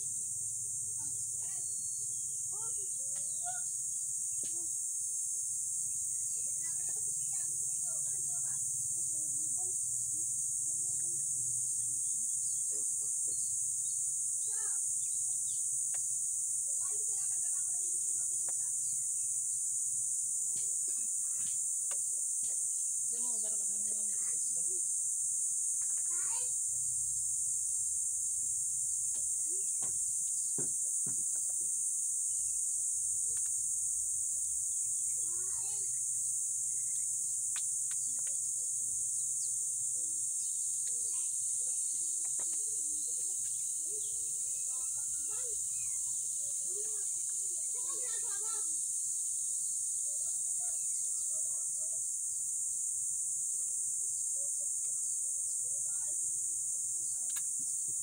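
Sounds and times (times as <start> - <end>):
insect chorus: 0.0 - 58.0.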